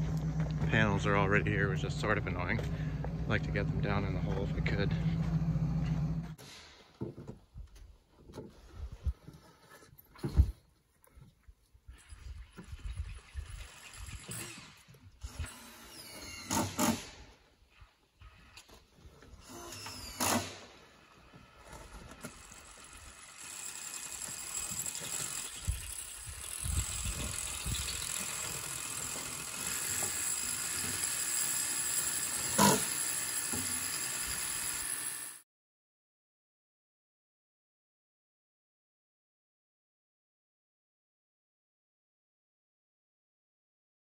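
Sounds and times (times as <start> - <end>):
steady mechanical noise: 0.0 - 6.4, 21.5 - 35.4.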